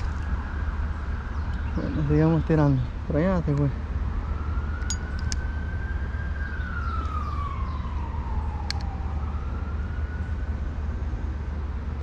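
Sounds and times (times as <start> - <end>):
siren wailing: 4.0 - 10.6.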